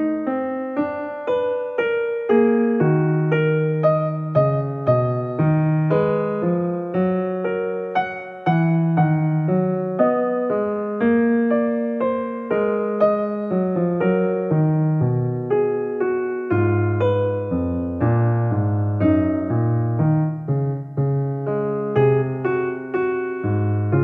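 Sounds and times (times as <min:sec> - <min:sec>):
calm piano music: 0:00.0 - 0:24.0.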